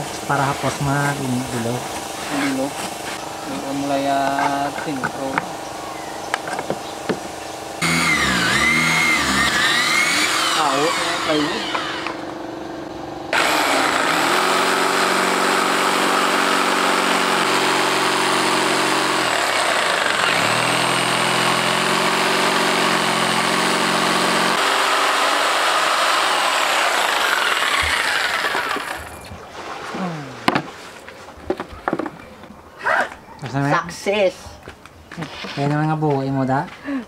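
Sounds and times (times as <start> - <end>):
jigsaw cutting plywood: 7.8 - 12.3, 13.3 - 29.3.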